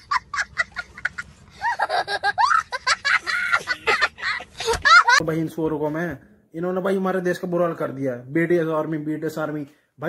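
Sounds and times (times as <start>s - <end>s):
boy laughing: 0.0s - 5.2s.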